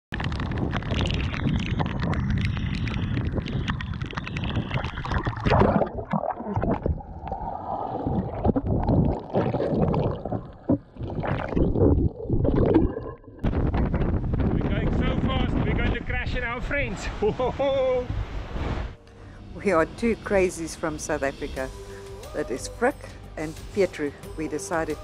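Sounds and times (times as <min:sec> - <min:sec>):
wind and rain on sea: 0:00.1 - 0:05.6, 0:13.4 - 0:19.0
underwater gurgling and bubbling: 0:00.1 - 0:14.6.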